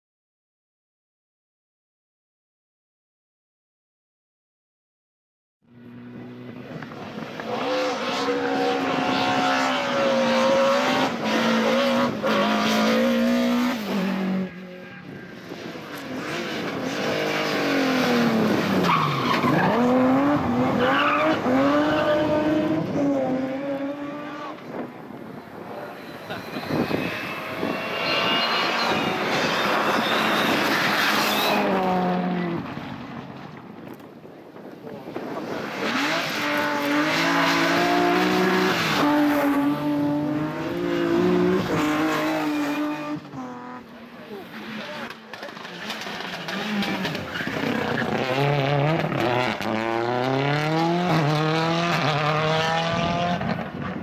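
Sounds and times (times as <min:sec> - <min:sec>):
rally car engine accelerating: 0:15.9 - 0:24.8, 0:35.2 - 0:54.0.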